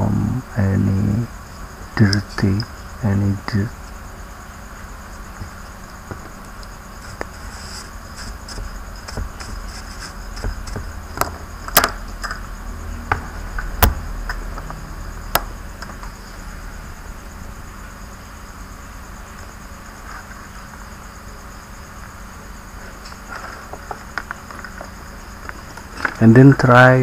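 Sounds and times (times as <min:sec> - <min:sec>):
clicks and knocks handling laptop: 0:10.4 - 0:12.4.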